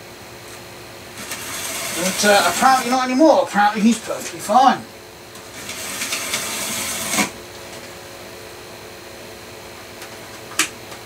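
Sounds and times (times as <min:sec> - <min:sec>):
faint steady hum: 0:00.0 - 0:11.0
model train motor whirring: 0:01.2 - 0:03.0, 0:05.5 - 0:07.3.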